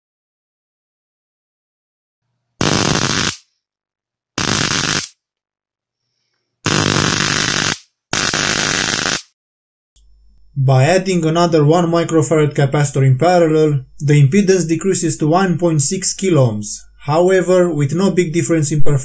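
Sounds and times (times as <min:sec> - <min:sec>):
high-voltage arc buzzing: 0:02.6 - 0:03.4, 0:04.4 - 0:05.2, 0:06.7 - 0:09.3.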